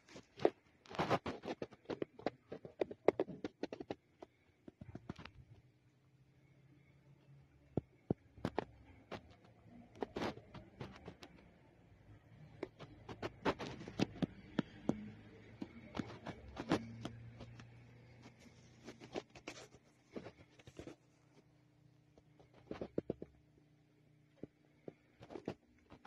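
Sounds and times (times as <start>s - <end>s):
sharp clicks and taps: 12.5s - 17.7s.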